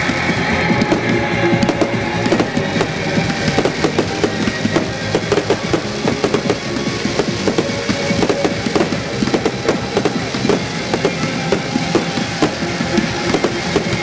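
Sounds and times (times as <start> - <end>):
fireworks bursting: 0.0 - 14.0.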